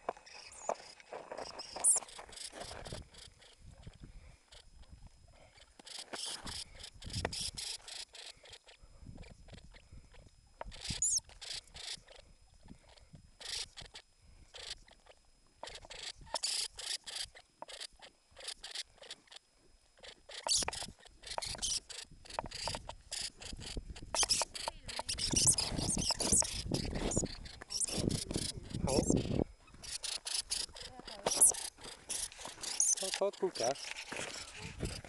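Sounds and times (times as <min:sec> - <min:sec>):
lemming squeaking: 0:20.0 - 0:35.0.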